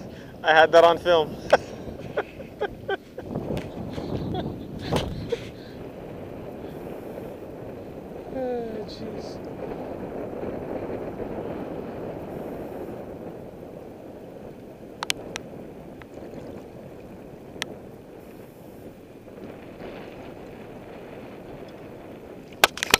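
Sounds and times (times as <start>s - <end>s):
wind: 0.0s - 22.9s
seawater lapping and sloshing: 15.9s - 17.5s.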